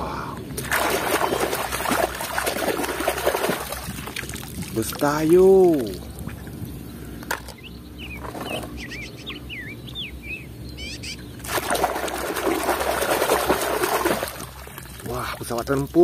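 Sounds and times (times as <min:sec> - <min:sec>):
water splashing and sloshing: 0:00.3 - 0:08.8, 0:11.3 - 0:16.0
bird chirping: 0:05.7 - 0:11.4.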